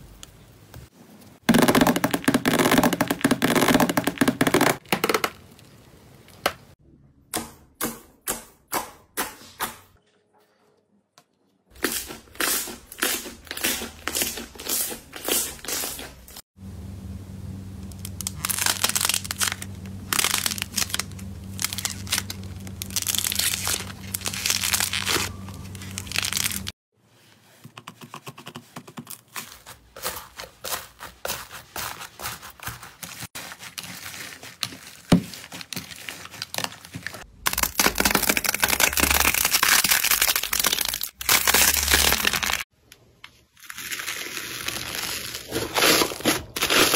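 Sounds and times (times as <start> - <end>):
slime squishing and crackling: 1.5 - 6.5, 17.9 - 26.7, 29.0 - 42.6, 43.6 - 46.9
steady low hum: 16.6 - 26.7.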